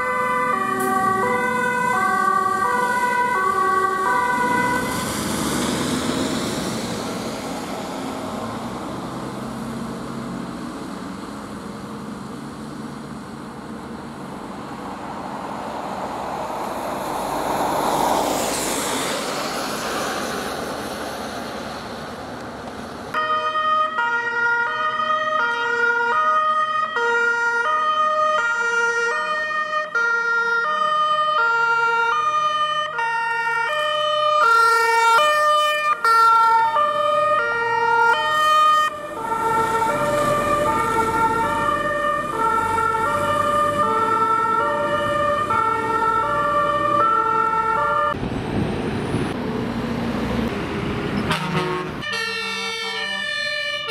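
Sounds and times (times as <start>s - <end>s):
two-tone fire engine siren: 0.0s - 10.4s, 23.1s - 48.3s, 51.2s - 53.9s
truck engine and tyres on wet road: 0.0s - 53.9s.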